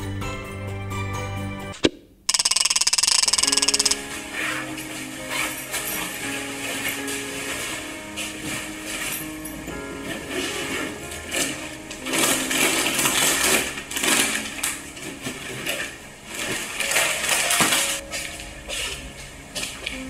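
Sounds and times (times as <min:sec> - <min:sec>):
items knocking together: 0:08.2 - 0:18.3
plastic bags crinkling: 0:10.5 - 0:18.6.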